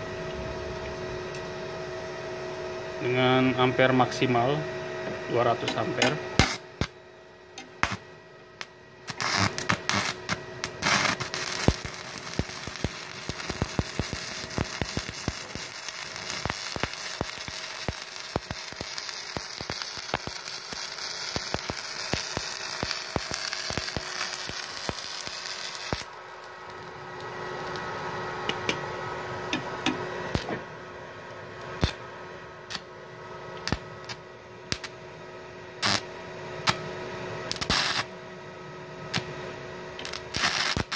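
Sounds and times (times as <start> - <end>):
welding arc crackling: 5.7 - 6.9, 7.6 - 28.8, 29.8 - 30.6, 31.6 - 32.0, 33.6 - 35.0, 35.8 - 36.1, 37.5 - 38.1, 39.1 - 39.3, 40.0 - 40.9.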